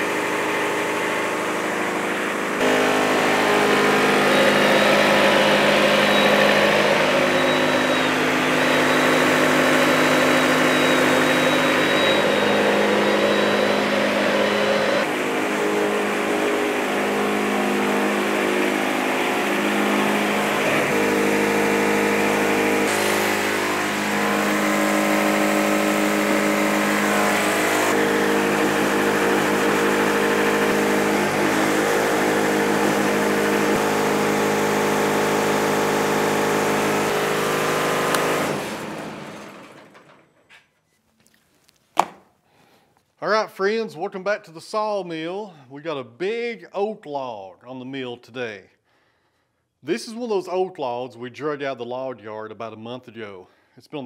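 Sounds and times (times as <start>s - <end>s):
sawmill engine running: 0.0s - 40.4s.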